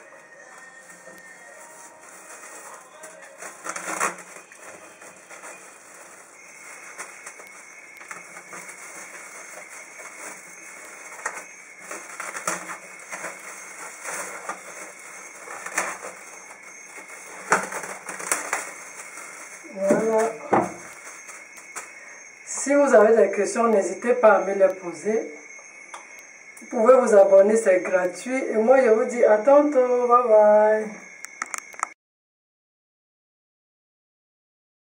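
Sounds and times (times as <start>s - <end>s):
cling film crinkling: 0.0s - 22.4s.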